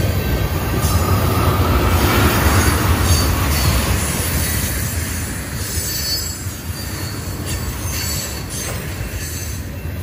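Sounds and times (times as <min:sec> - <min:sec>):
train wheels rumbling on rails: 0:00.0 - 0:10.0
faint wheel squeal: 0:05.6 - 0:09.9.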